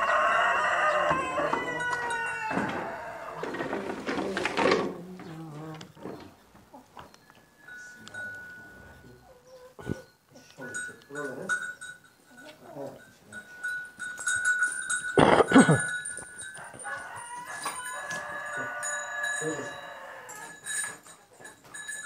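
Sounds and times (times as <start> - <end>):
rooster crowing: 0.0 - 3.6, 16.5 - 20.7.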